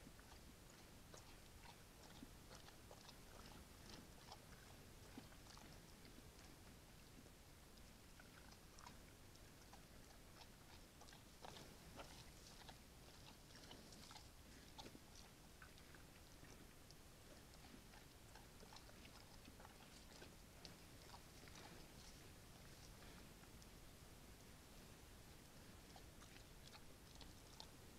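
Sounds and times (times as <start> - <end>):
bear chewing and crunching: 0.0 - 23.9, 24.6 - 27.9.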